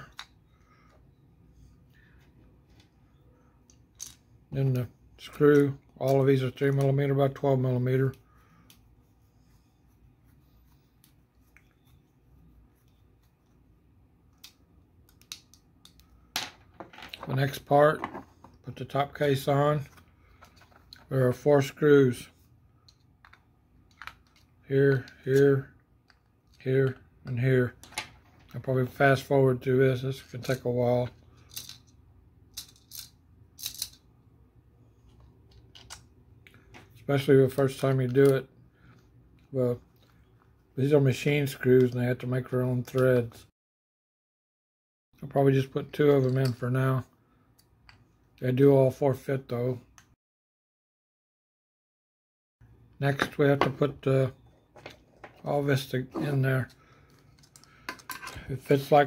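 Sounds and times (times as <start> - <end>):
plastic parts scraping and clicking: 54.7 - 58.5.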